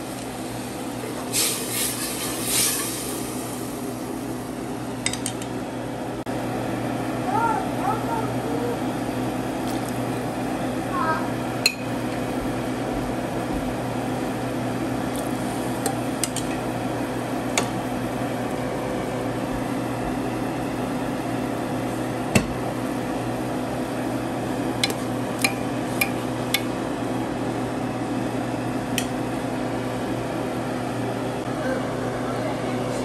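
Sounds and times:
appliance motor hum: 0:00.0 - 0:33.0.

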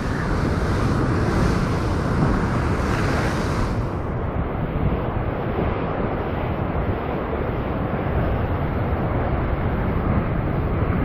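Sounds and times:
surf breaking on rocks: 0:00.0 - 0:04.1
wind buffeting microphone: 0:00.0 - 0:11.0.

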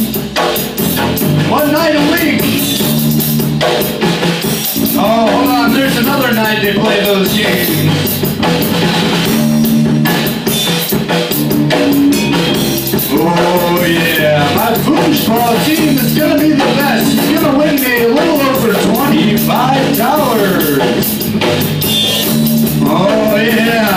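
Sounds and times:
drum kit playing: 0:00.0 - 0:23.9
electric bass guitar: 0:00.0 - 0:23.9
wavering bending lead melody: 0:11.5 - 0:23.9.

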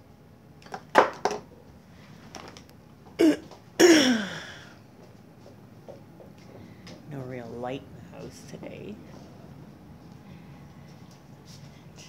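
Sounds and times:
person coughing: 0:03.2 - 0:04.7.

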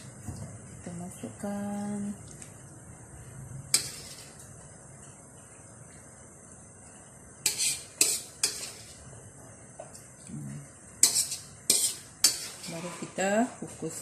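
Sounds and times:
metal spoon clinking on dishes: 0:11.0 - 0:13.0.

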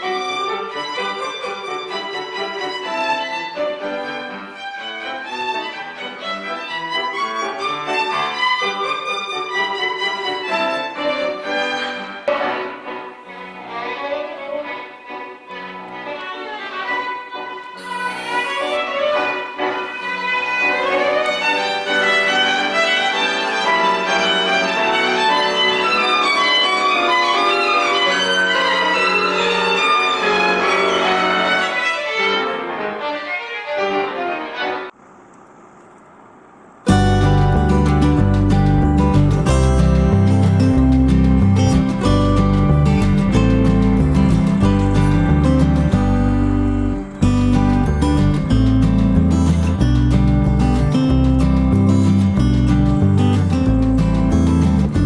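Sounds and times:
violin playing slow melody: 0:00.0 - 0:34.2
piano accompaniment: 0:00.0 - 0:34.9, 0:36.9 - 0:55.0.

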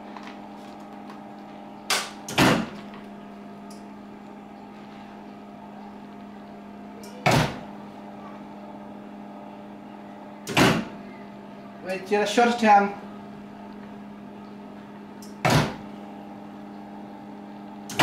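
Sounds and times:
electrical hum: 0:00.0 - 0:18.0
loud mechanical clunk: 0:01.9 - 0:02.9, 0:07.2 - 0:07.7, 0:10.4 - 0:11.0, 0:15.4 - 0:15.9.

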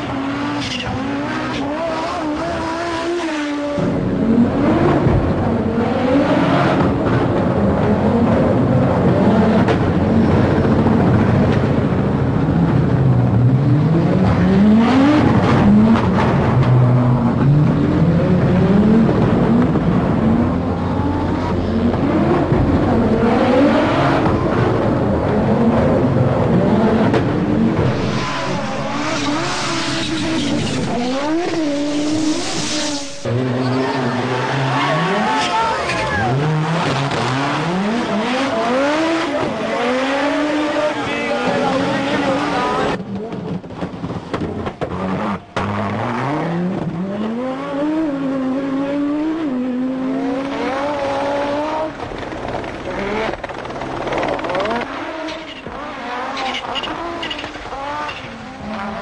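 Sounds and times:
rally car engine revving: 0:00.0 - 0:59.0
steady engine note: 0:27.8 - 0:33.4.

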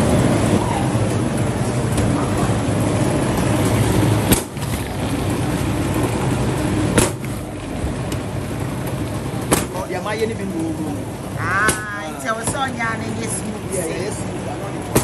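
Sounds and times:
dough rolling machine running: 0:00.0 - 0:15.0
sharp knocks: 0:06.9 - 0:07.4, 0:09.5 - 0:09.8.

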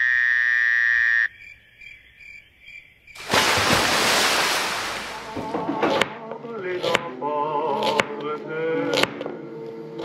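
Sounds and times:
frog call: 0:00.0 - 0:02.8
chirping insects: 0:00.0 - 0:04.8.

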